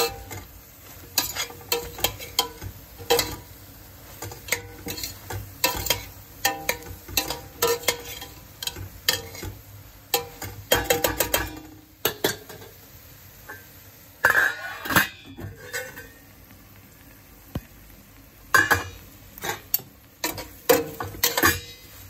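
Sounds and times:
spoon scraping a metal pot: 0.0s - 3.5s, 4.1s - 9.6s, 14.2s - 16.2s.

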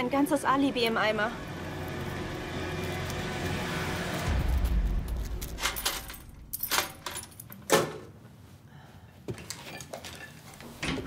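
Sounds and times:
low street rumble: 0.0s - 7.4s.

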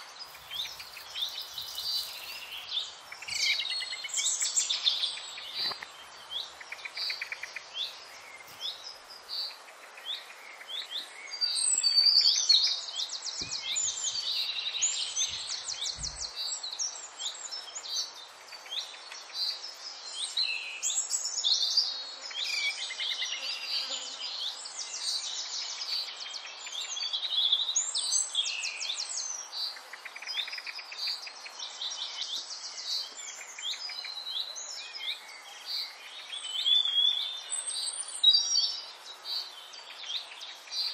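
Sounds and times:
songbirds chirping and trilling: 0.0s - 40.9s.

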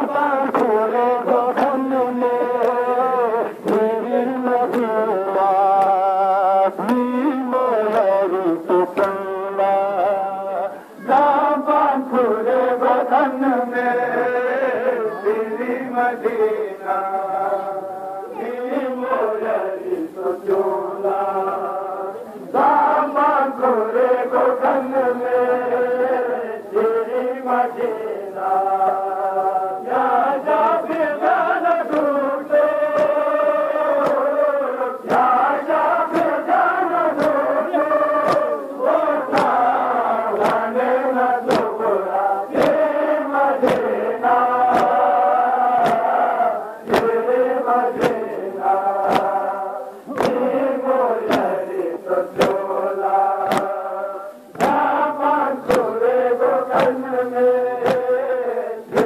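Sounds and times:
men chanting in unison: 0.0s - 59.0s
hand slaps on bare chests: 0.4s - 1.9s, 4.6s - 4.9s, 8.9s - 9.2s, 31.8s - 32.1s, 32.9s - 33.2s, 33.9s - 34.4s, 35.0s - 35.3s, 36.1s - 36.4s, 37.1s - 37.5s, 38.2s - 38.5s, 39.3s - 40.7s, 41.4s - 41.8s, 42.5s - 42.8s, 43.6s - 44.0s, 44.7s - 45.0s, 45.8s - 46.1s, 46.9s - 47.2s, 47.9s - 48.2s, 49.0s - 49.5s, 50.1s - 50.6s, 51.2s - 51.6s, 52.3s - 52.7s, 53.4s - 53.8s, 54.5s - 54.9s, 55.6s - 56.0s, 56.7s - 57.1s, 57.8s - 58.2s.

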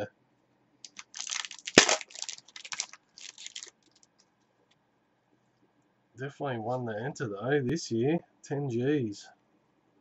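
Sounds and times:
wrapper crinkling and tearing: 0.9s - 4.1s
wrapper sharp snap: 0.9s - 4.1s.

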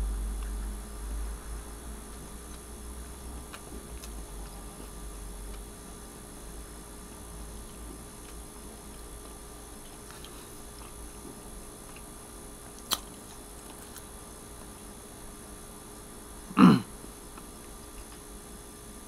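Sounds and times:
man's short throat sound: 16.5s - 16.9s.

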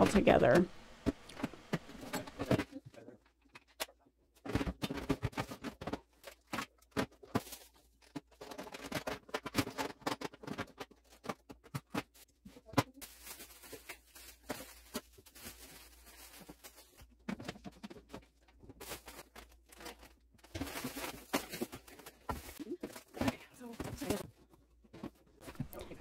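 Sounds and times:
small items knocking and clicking: 0.0s - 26.0s
plastic bags rustling: 5.0s - 26.0s.

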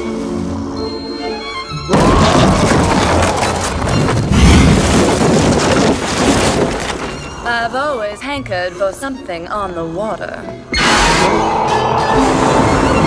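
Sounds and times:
music: 0.0s - 4.1s, 7.0s - 13.0s.

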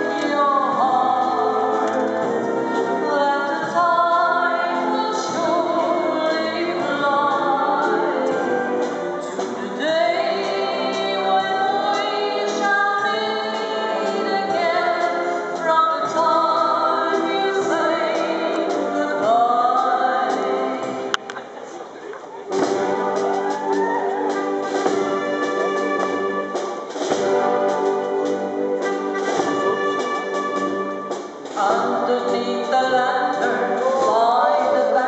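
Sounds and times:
choir singing: 4.3s - 12.8s.

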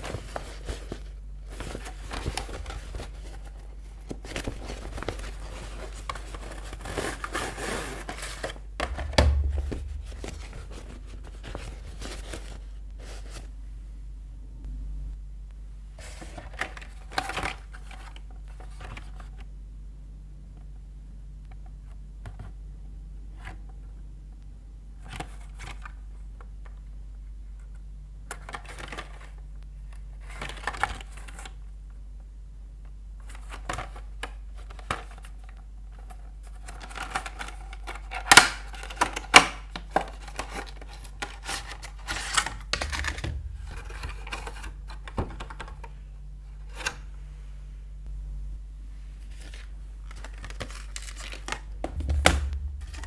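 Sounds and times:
packaging snapping and crackling: 36.5s - 45.9s, 49.4s - 52.6s.

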